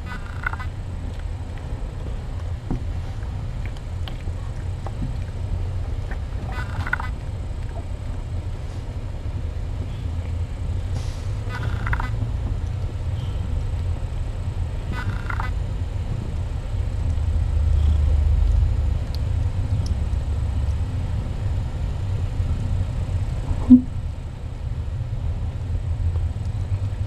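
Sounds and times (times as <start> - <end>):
low purring rumble: 0.0 - 27.0
kittens squeaking: 6.4 - 7.2, 11.5 - 12.2, 14.9 - 15.6.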